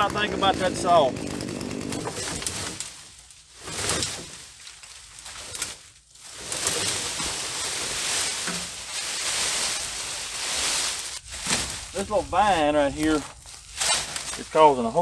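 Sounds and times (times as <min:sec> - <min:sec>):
brush and vines rustling: 0:00.0 - 0:15.0.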